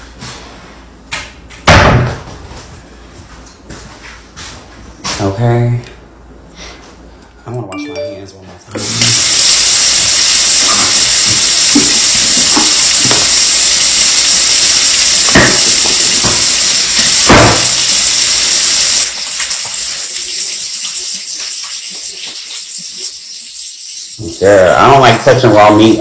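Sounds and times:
tap running into sink: 0:11.3 - 0:13.4, 0:15.2 - 0:17.8
hands washing under water: 0:19.4 - 0:24.2.

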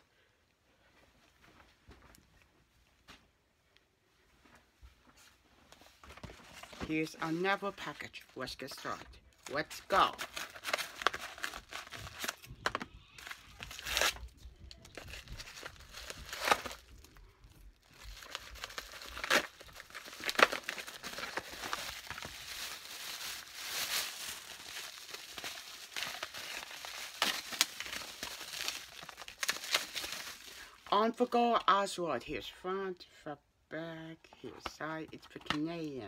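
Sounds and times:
plastic wrapping crinkling: 0:09.0 - 0:30.9
paper mailer tearing: 0:09.5 - 0:14.2, 0:18.2 - 0:30.6.

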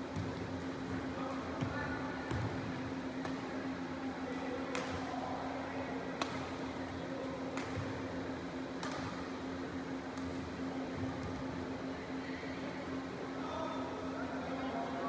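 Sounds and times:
steady low hum: 0:00.0 - 0:15.0
racket striking shuttlecock: 0:04.7 - 0:05.0, 0:06.2 - 0:06.5, 0:07.6 - 0:07.9, 0:08.8 - 0:09.2.

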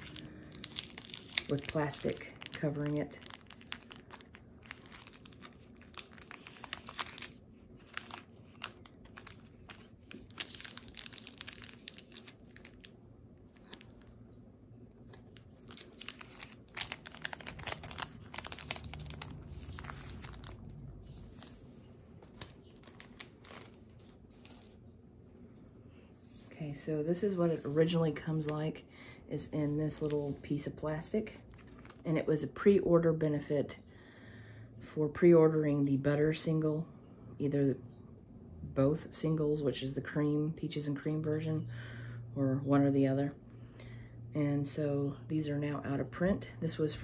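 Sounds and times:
plastic bag crinkling: 0:00.0 - 0:14.2, 0:14.9 - 0:24.8, 0:31.3 - 0:32.1.

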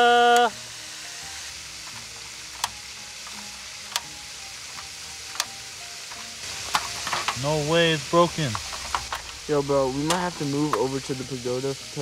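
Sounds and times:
person shouting: 0:00.0 - 0:00.6
steady gas hiss: 0:00.0 - 0:12.0
grill igniter clicks: 0:01.5 - 0:11.4.

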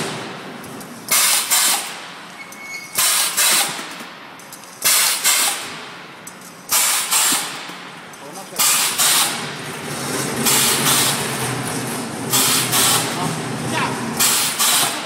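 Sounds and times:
pneumatic cylinder air hissing: 0:01.1 - 0:03.9, 0:04.8 - 0:05.8, 0:06.7 - 0:07.7, 0:08.6 - 0:09.4, 0:10.4 - 0:11.2, 0:12.3 - 0:13.2, 0:14.2 - 0:15.0
machine noise: 0:06.7 - 0:15.0.

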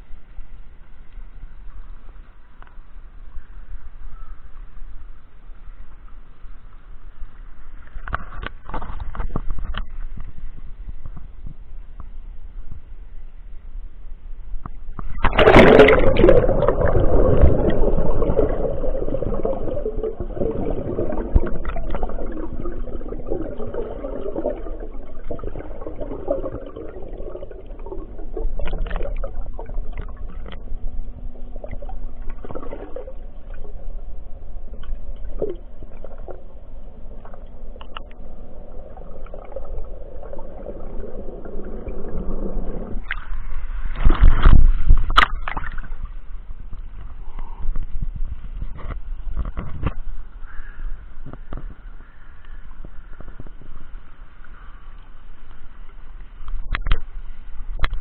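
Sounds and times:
water sloshing and bubbling underwater: 0:00.0 - 0:58.0
water splashing: 0:15.0 - 0:46.3.

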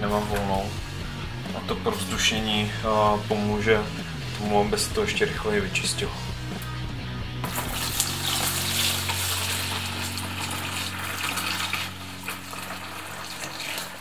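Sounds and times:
liquid pouring into plastic bucket: 0:07.4 - 0:14.0.

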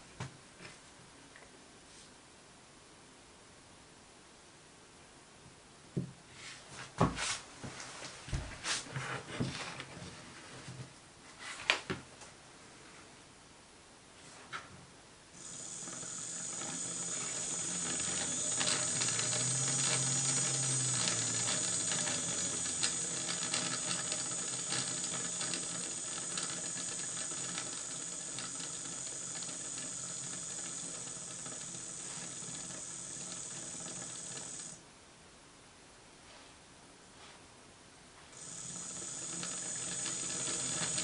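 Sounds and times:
clicking gears: 0:15.4 - 0:34.8, 0:38.4 - 0:41.0
electric motor whine: 0:15.4 - 0:34.8, 0:38.4 - 0:41.0.

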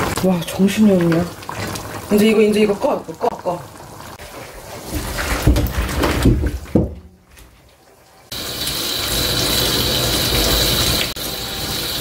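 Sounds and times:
tap water running: 0:00.0 - 0:12.0
food splashing into a metal sink: 0:04.9 - 0:07.7.

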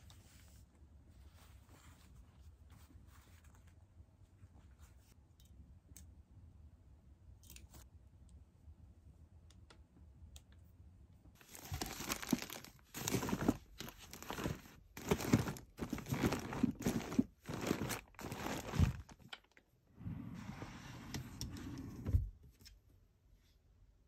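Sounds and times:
plastic bags crinkling and rustling: 0:11.4 - 0:19.6.

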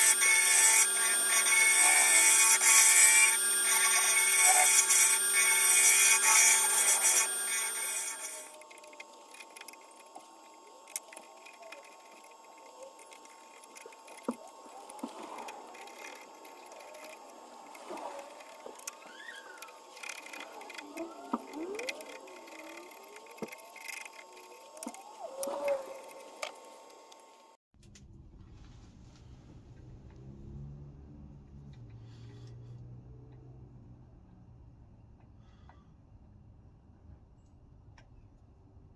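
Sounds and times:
metal tool scraping bark: 0:00.0 - 0:08.5
faint steady whine: 0:00.0 - 0:27.6.

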